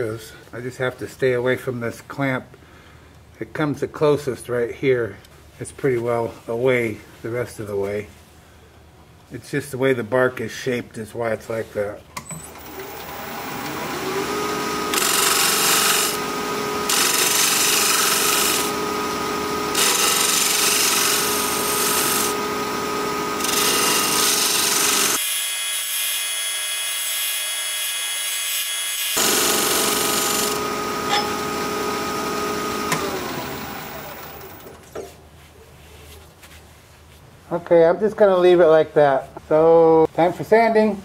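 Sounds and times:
wood lathe motor whine: 12.4 - 34.8.

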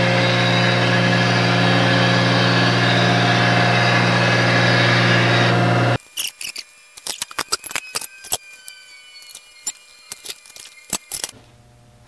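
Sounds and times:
low hum: 0.0 - 6.0
metal chips tinkling: 6.2 - 11.4.

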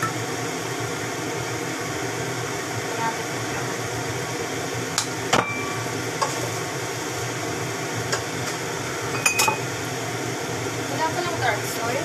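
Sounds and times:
cookware knocking and clinking: 9.2 - 9.6.

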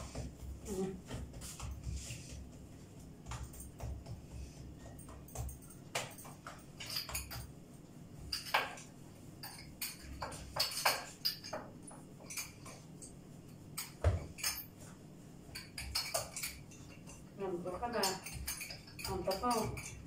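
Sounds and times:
utensils knocking on countertop: 8.2 - 12.8, 15.5 - 20.0.

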